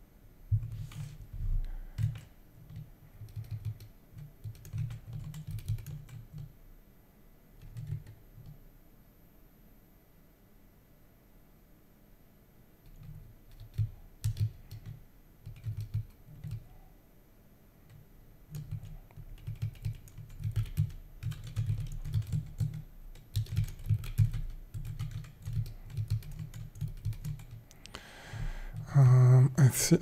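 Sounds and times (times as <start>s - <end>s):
typing on computer keyboard: 1.9s - 6.5s, 7.6s - 8.6s, 12.8s - 16.7s, 17.9s - 28.0s.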